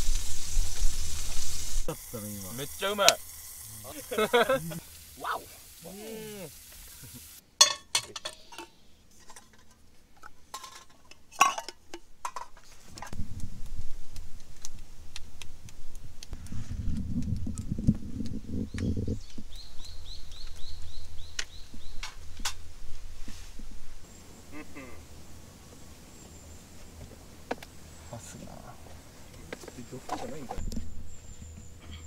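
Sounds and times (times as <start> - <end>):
camp dishes clinking: 7.6 - 13.2, 29.3 - 32.0
bird chirping: 18.5 - 22.4.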